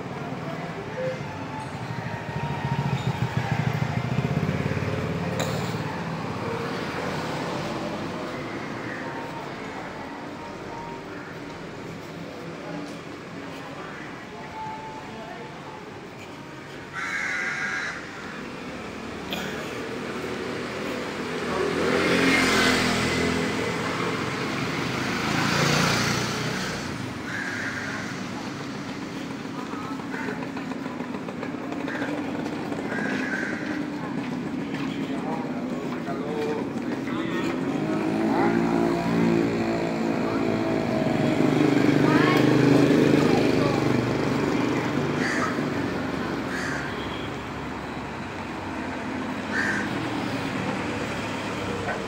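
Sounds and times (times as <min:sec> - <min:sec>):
motor scooter passing: 0:00.0 - 0:13.5, 0:16.9 - 0:52.0
vehicles driving past: 0:00.0 - 0:52.0
small motorcycle riding past: 0:19.8 - 0:28.1, 0:37.4 - 0:46.8.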